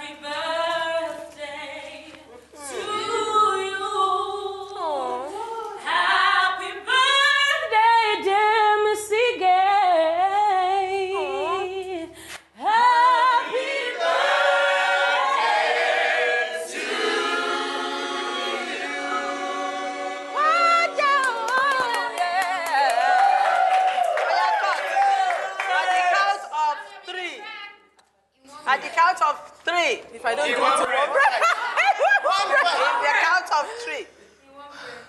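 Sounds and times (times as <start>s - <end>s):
group singing unaccompanied: 0.0s - 8.8s, 12.6s - 23.5s.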